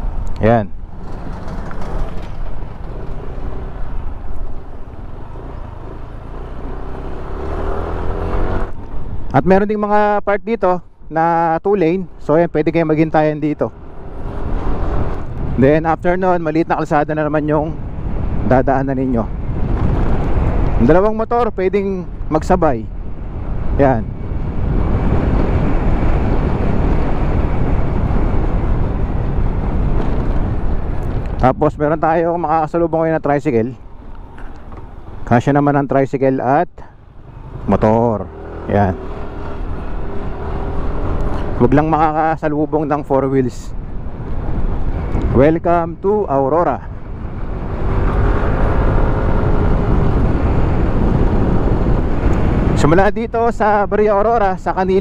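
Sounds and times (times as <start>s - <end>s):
wind and road noise: 0.0s - 55.0s
motorcycle engine: 0.4s - 9.3s, 13.7s - 15.7s, 37.0s - 42.2s, 47.0s - 52.7s
motorcycle engine running: 0.9s - 8.9s.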